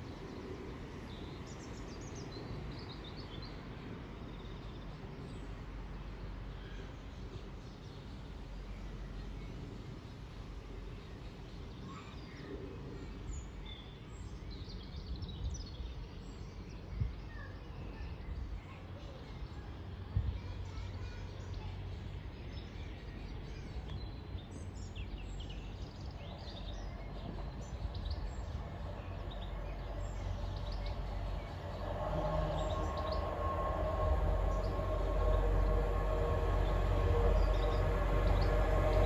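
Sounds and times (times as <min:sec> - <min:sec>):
low outdoor rumble: 0:19.7 - 0:39.0
birds chirping and singing: 0:24.8 - 0:39.0.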